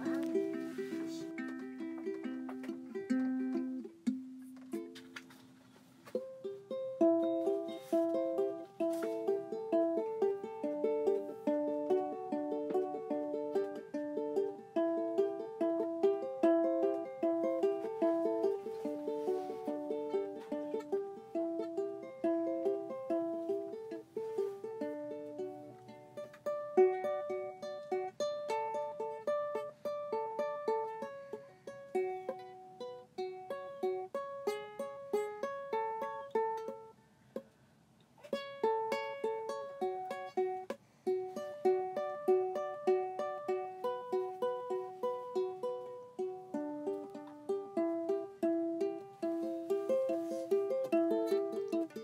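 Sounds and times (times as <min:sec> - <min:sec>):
plucked string instrument melody: 0:00.0 - 0:37.5, 0:38.1 - 0:52.0.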